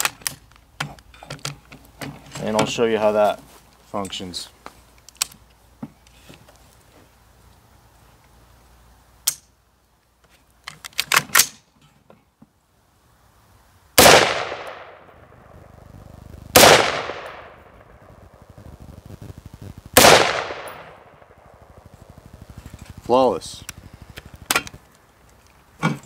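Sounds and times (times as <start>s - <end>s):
rifle gunshots: 14.0s - 15.4s, 16.5s - 18.1s, 20.0s - 21.8s.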